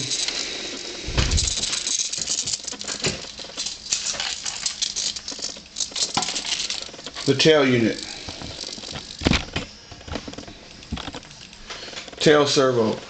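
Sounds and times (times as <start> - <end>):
small plastic parts rattling: 0.0 - 11.6
dull thump: 1.1 - 1.5.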